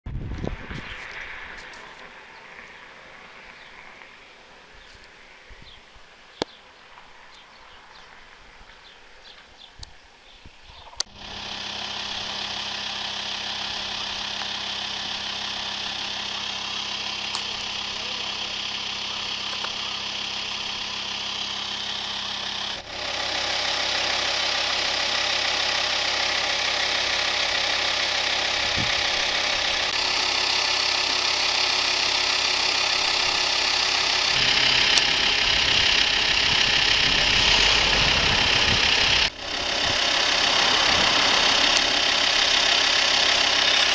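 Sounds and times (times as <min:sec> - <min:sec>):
van engine idling: 0:11.0 - 0:43.9.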